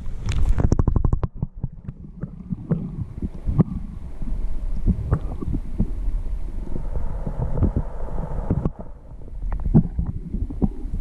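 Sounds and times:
underwater clicks and knocks: 0.0s - 3.8s, 4.8s - 5.9s
muffled underwater sound: 0.0s - 11.0s.

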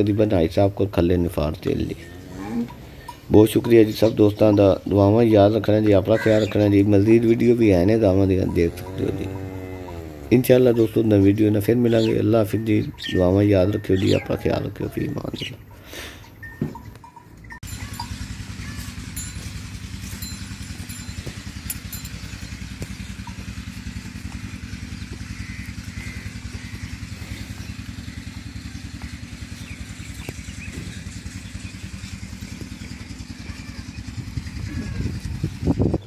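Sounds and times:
small engine throbbing: 1.0s - 36.0s.

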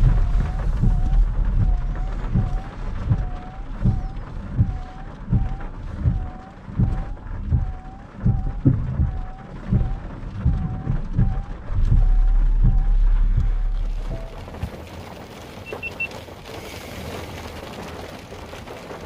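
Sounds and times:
faint pulsing whine: 0.0s - 15.2s
heavy rain drumming on car roof: 0.0s - 19.0s.

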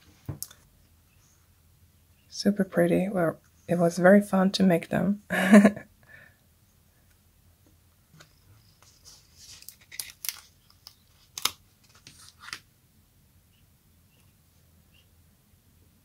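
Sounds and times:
sticker sheet crackling: 9.4s - 12.6s.

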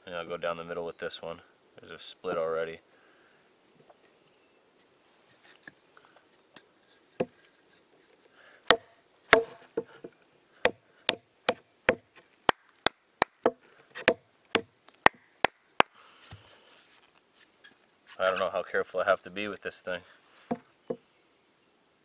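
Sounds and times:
wooden baton striking knife spine: 8.7s - 10.0s.

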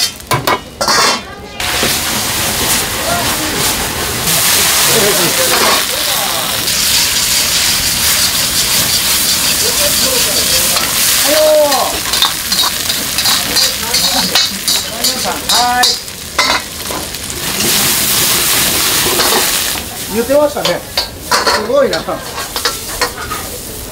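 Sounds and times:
food sizzling in a wok: 0.0s - 23.9s
ladle clinking against wok: 6.7s - 17.0s, 20.6s - 23.5s.

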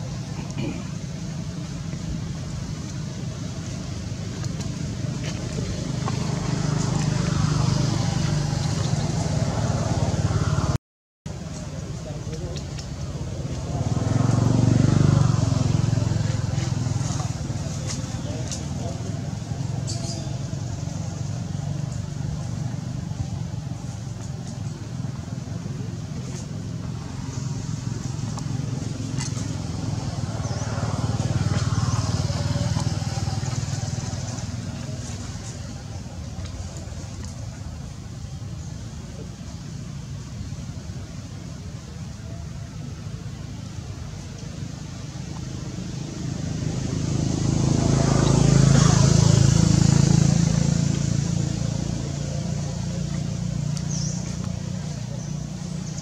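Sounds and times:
engine low pulsing hum: 0.0s - 56.0s.

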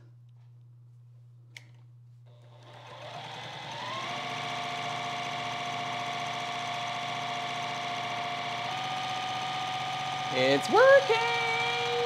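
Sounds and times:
sewing machine stitching: 2.3s - 12.0s.

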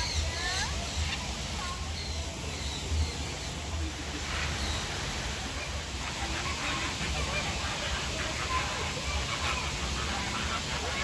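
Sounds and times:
flamingos honking: 4.5s - 11.0s.

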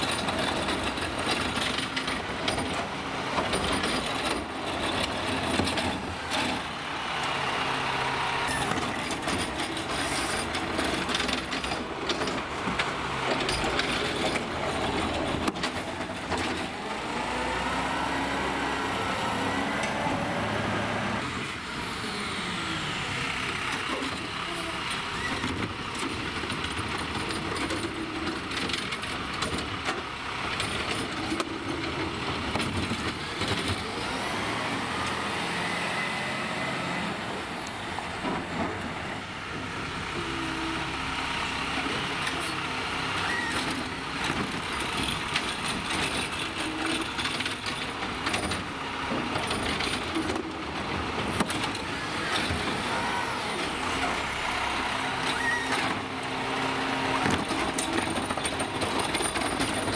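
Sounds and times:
metal clanks and knocks: 0.0s - 6.7s, 8.6s - 16.8s, 57.1s - 59.9s
garbage truck diesel engine: 0.0s - 59.9s
hydraulic whine: 51.8s - 56.2s.

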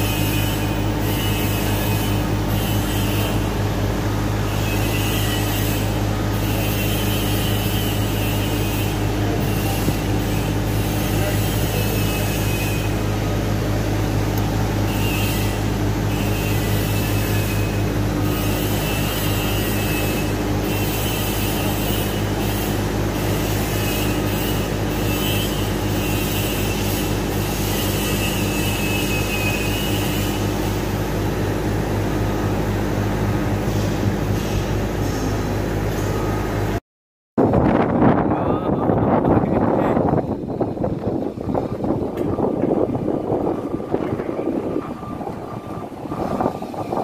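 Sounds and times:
crane engine running: 0.0s - 36.8s, 39.5s - 47.0s
high whine: 37.4s - 47.0s.

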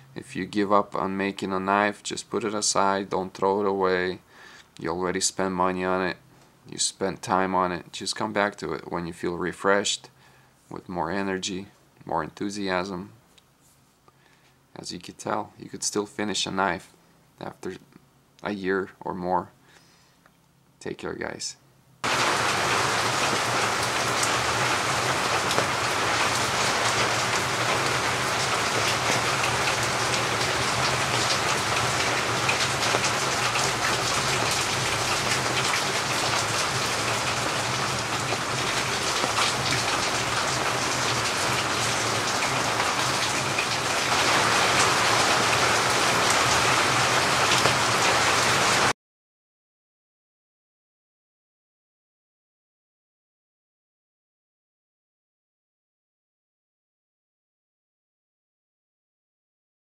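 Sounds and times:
steady rain falling: 22.0s - 48.9s.

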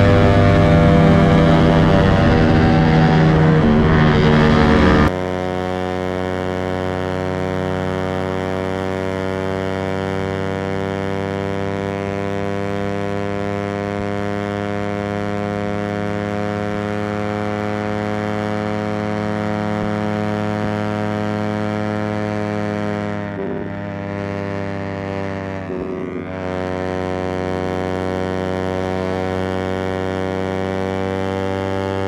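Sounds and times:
motorcycle engine running steadily: 0.0s - 32.0s.

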